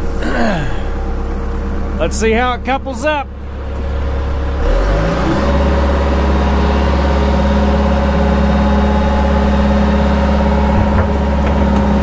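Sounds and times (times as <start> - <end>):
excavator diesel engine and hydraulics: 0.0 - 12.0.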